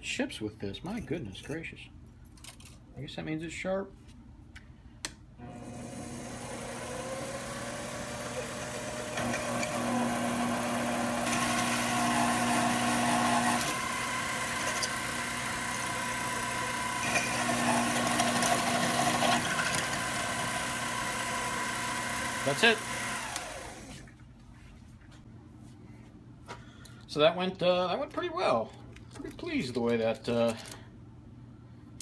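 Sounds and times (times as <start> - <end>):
lathe motor hum: 5.4 - 24.1
steady tone of drill cutting steel: 5.4 - 24.1.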